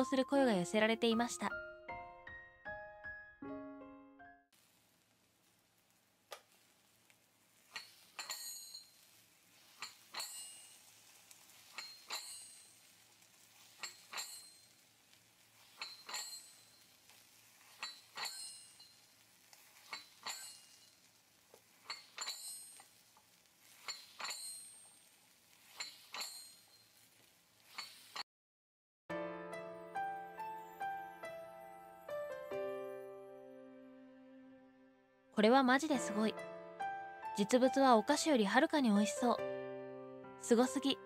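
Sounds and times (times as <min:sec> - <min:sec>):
metallic clack with ring: 0:07.8 - 0:09.0, 0:09.8 - 0:10.8, 0:11.8 - 0:12.7, 0:13.8 - 0:14.6, 0:15.8 - 0:16.8, 0:17.8 - 0:19.0, 0:19.9 - 0:20.8, 0:21.9 - 0:22.9, 0:23.8 - 0:24.9, 0:25.8 - 0:26.8.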